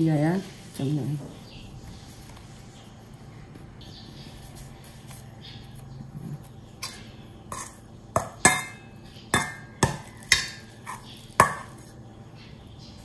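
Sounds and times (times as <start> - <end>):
metal spoon scraping steel bowl: 6.8 - 8.8, 9.4 - 11.9.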